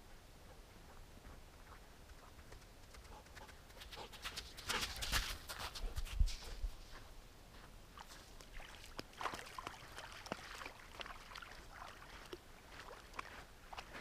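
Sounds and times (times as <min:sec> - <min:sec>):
small waves lapping on gravel: 0:08.0 - 0:14.0.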